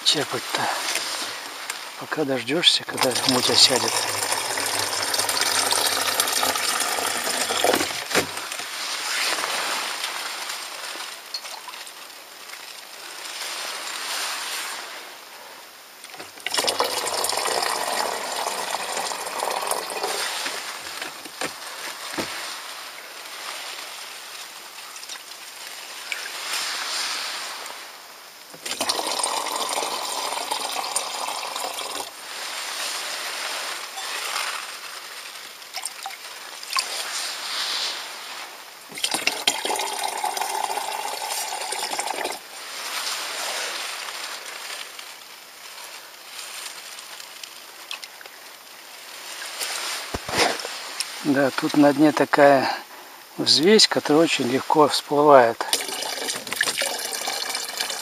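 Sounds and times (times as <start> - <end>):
water pouring into plastic canister: 2.7 - 8.8, 16.1 - 21.6, 28.5 - 32.6, 35.7 - 37.2, 38.9 - 42.9, 55.6 - 58.0
water scooping: 2.8 - 10.3, 16.1 - 24.0, 28.5 - 44.7, 55.6 - 58.0.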